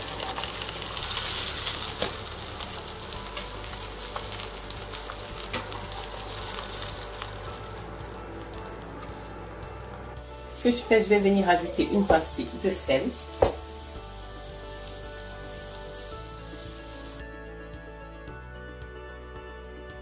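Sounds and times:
fish sizzling in hot oil: 0.0s - 9.0s, 10.2s - 17.2s.

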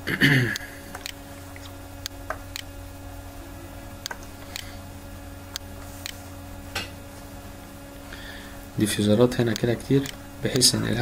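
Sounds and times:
low electrical hum: 0.0s - 11.0s
computer mouse clicks: 0.9s - 1.2s.

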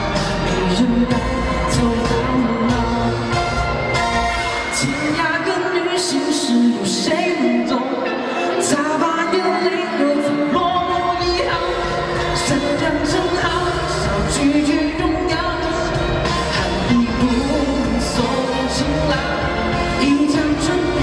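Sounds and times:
bass line: 0.0s - 5.6s, 10.8s - 21.0s
pop song with sung melody: 0.0s - 21.0s.

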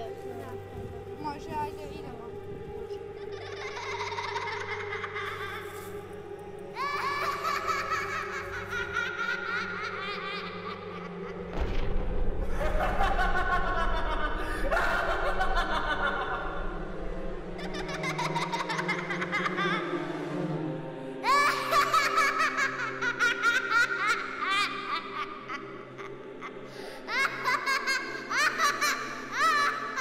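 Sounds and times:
low droning score: 0.0s - 30.0s
high cackling laugh: 3.1s - 5.9s, 6.8s - 11.5s, 12.5s - 16.7s, 17.6s - 20.1s, 21.2s - 30.0s
deep rumble: 11.4s - 17.8s.

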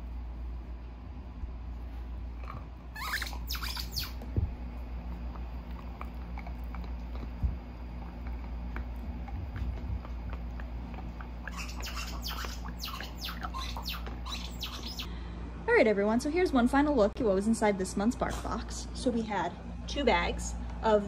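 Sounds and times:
squeaky dog toy: 2.9s - 4.2s, 11.4s - 15.0s
dog chewing on a toy: 4.2s - 14.3s.

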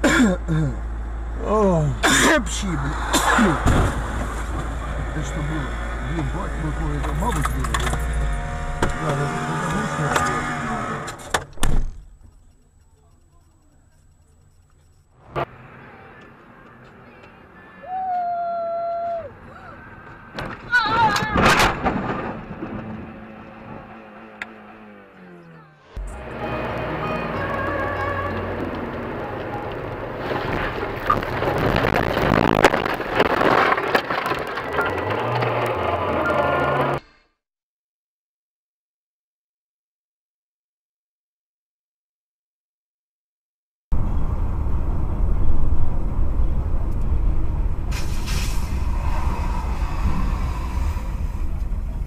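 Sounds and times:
car interior rumble: 0.0s - 17.4s, 18.2s - 37.0s, 44.0s - 52.0s
road noise of moving car: 0.0s - 37.0s, 43.9s - 52.0s
car crashing through bushes: 3.1s - 4.6s, 20.6s - 23.8s, 30.2s - 36.8s
knocks and thumps of tumbling car: 3.6s - 5.1s, 20.0s - 23.9s, 30.2s - 35.8s
scraping noise: 47.9s - 52.0s.

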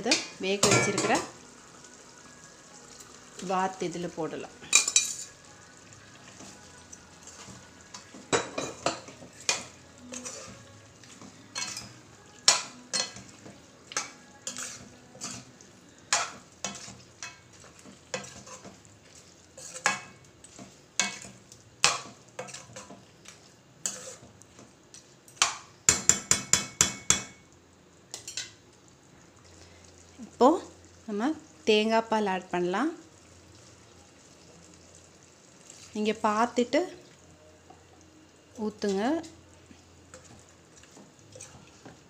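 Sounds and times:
metal ladle scraping a pot: 8.8s - 10.7s, 14.0s - 15.5s, 18.1s - 18.8s, 19.6s - 20.1s, 23.8s - 24.3s.

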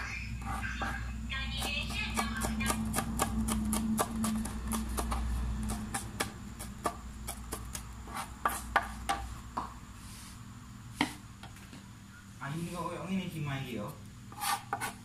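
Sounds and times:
knife chopping on cutting board: 1.8s - 9.7s, 14.3s - 15.0s.

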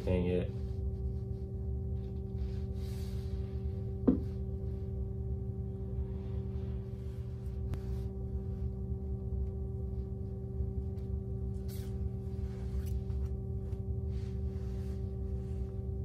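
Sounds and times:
low rumble: 0.0s - 16.0s
steady hum of fixed tones: 0.0s - 16.0s.

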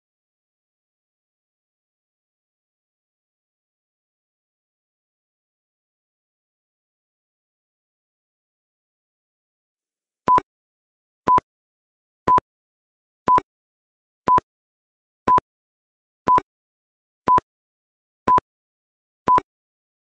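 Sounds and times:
short electronic timer beeps: 10.3s - 10.5s, 13.3s - 13.5s, 16.3s - 16.5s, 19.3s - 19.5s.

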